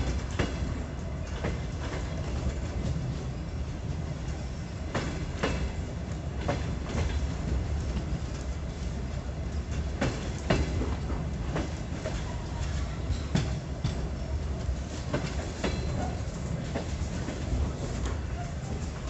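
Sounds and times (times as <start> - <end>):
train low rumble: 0.0 - 19.0
wheels clicking over rail joints: 9.4 - 14.1.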